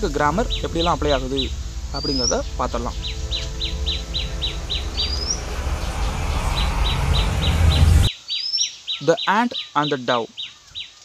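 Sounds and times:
low rumble: 0:00.0 - 0:08.1
small bird chirping: 0:00.0 - 0:11.0
rising bird whistle: 0:00.2 - 0:08.7.

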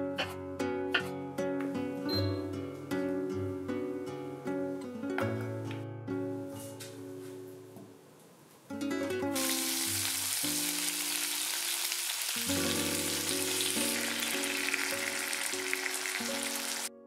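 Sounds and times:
background music: 0:00.0 - 0:07.8, 0:08.7 - 0:17.0
food sizzling in hot oil: 0:09.4 - 0:17.0.

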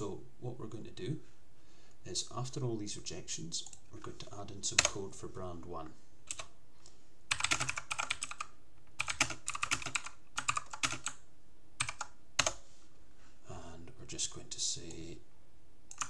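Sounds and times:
computer keyboard typing: 0:03.6 - 0:05.0, 0:06.3 - 0:06.5, 0:07.3 - 0:11.2, 0:11.8 - 0:12.6.

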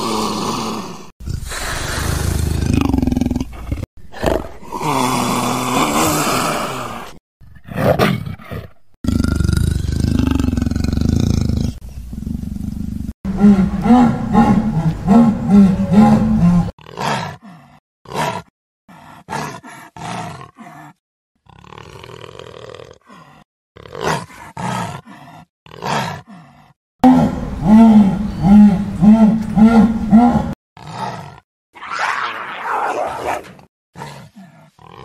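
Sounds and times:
leopard roaring: 0:13.3 - 0:18.4, 0:23.8 - 0:35.0.

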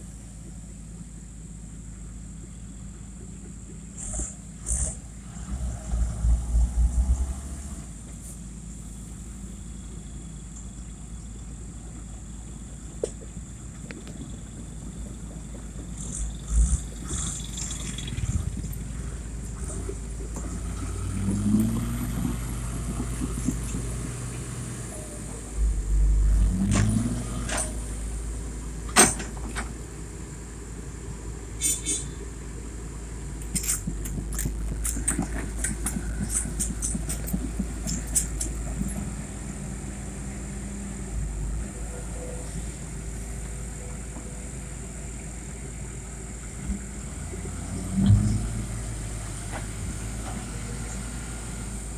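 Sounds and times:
diesel truck engine revving: 0:04.0 - 0:08.0, 0:15.9 - 0:28.9, 0:45.5 - 0:51.9
clicks and clatter: 0:33.4 - 0:39.0.

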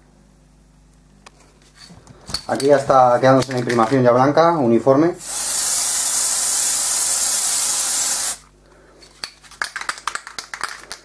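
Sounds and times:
aerosol spray can hissing: 0:05.2 - 0:08.5.

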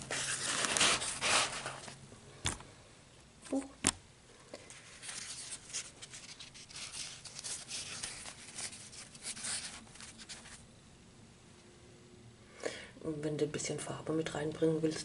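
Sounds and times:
paper rustling against yarn: 0:00.0 - 0:02.0, 0:04.6 - 0:10.6.

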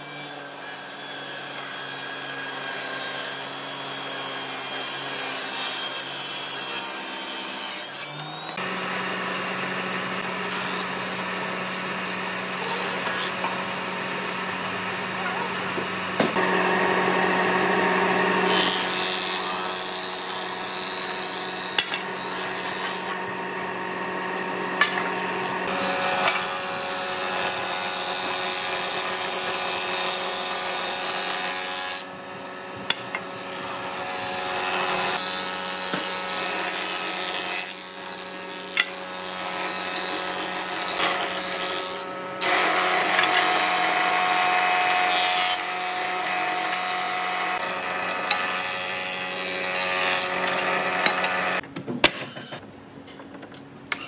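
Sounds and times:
table saw ripping wood: 0:00.0 - 0:51.6
planer motor humming: 0:08.1 - 0:21.0, 0:21.6 - 0:51.6.

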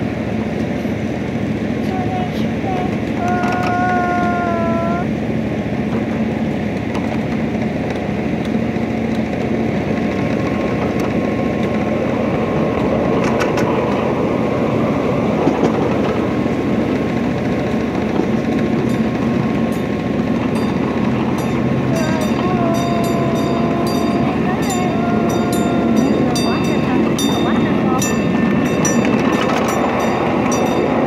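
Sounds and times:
train wheels rumbling on rails: 0:00.0 - 0:31.0
train whistle: 0:22.0 - 0:26.6.

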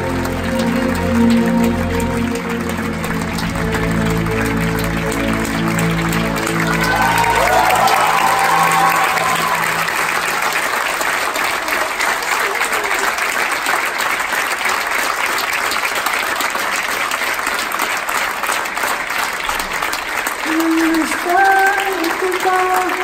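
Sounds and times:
film music: 0:00.0 - 0:11.7
audience applauding: 0:00.0 - 0:23.0.

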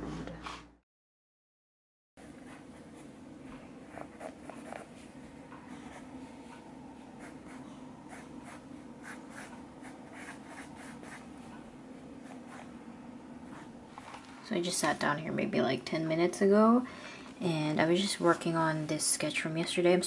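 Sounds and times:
pencil scratching on paper: 0:02.2 - 0:11.6, 0:12.2 - 0:12.8
steady low hum: 0:02.2 - 0:20.0.

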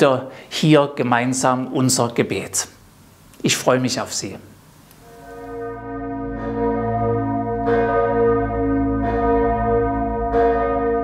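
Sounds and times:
church bell ringing: 0:05.0 - 0:11.0.

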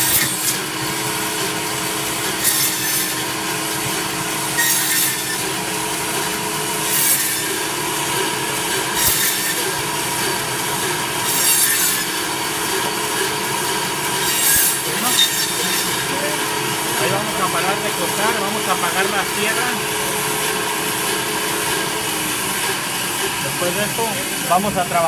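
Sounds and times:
saw blade rasping through bone: 0:00.0 - 0:01.1, 0:02.3 - 0:03.4, 0:04.5 - 0:05.6, 0:06.8 - 0:13.5, 0:14.1 - 0:16.4
electric band saw humming: 0:00.0 - 0:25.0.

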